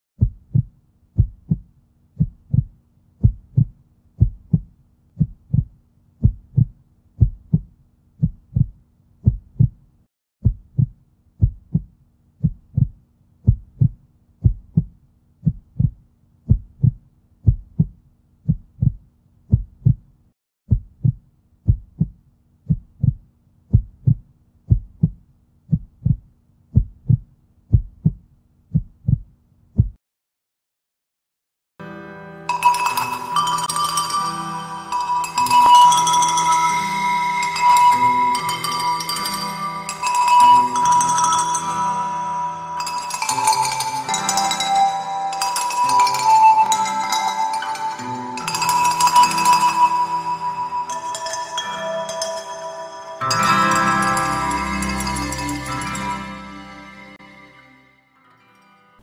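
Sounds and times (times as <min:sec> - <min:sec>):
heartbeat thumps: 0:00.2 - 0:20.1, 0:20.7 - 0:30.0.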